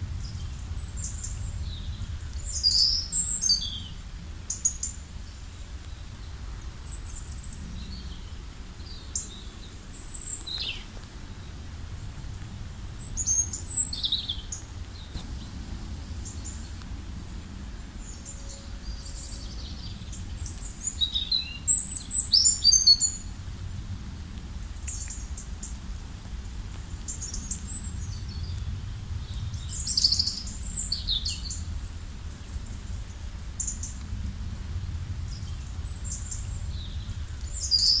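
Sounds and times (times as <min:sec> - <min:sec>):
steady low rumble: 0:00.0 - 0:22.4, 0:23.1 - 0:38.0
small birds chirping: 0:00.1 - 0:12.1, 0:12.7 - 0:23.3, 0:34.8 - 0:38.0.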